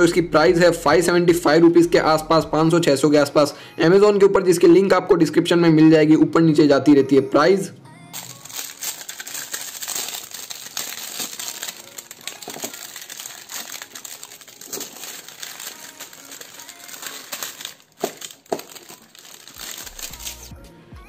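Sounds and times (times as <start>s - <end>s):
plastic wrap crinkling: 8.1s - 20.5s.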